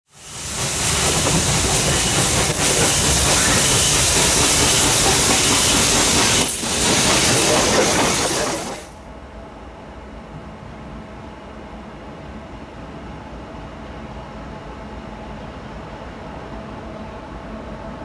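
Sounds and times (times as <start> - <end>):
steam locomotive passing: 0.1 - 9.0.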